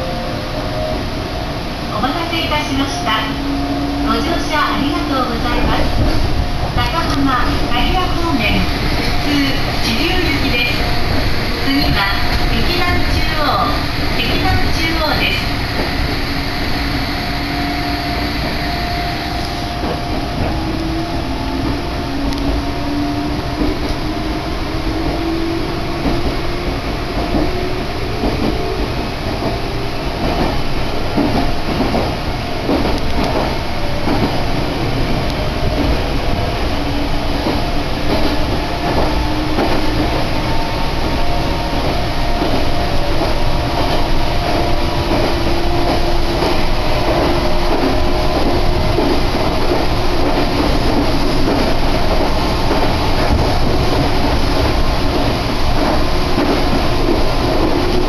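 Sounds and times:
electric train hum: 0.0 - 58.0
train wheels rumbling on rail: 0.0 - 58.0.

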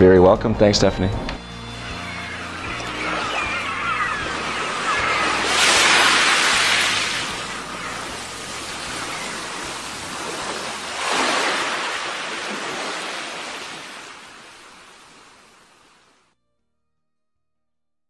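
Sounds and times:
ocean waves washing in: 1.8 - 16.2.

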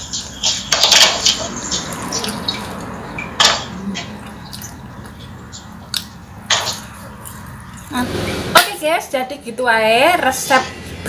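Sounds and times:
crunchy chewing: 0.3 - 7.9.

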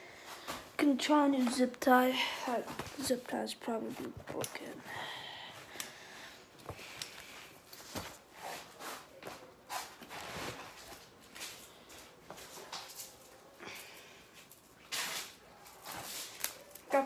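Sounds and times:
rustling of objects being handled: 5.6 - 17.0.

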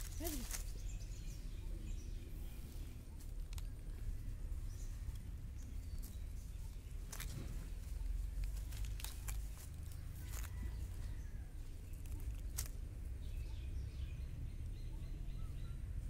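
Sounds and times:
dry leaves crackling: 0.0 - 1.3, 2.3 - 13.4
low outdoor rumble: 0.0 - 16.0.

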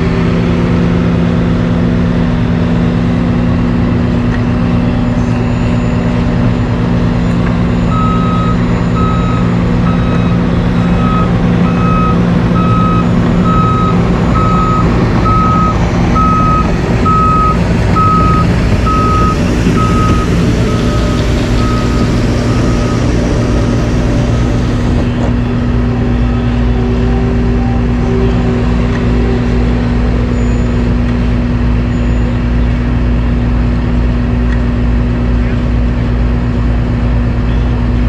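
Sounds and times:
heavy diesel engines running: 0.0 - 38.0
backup alarm beeping: 7.6 - 23.6.

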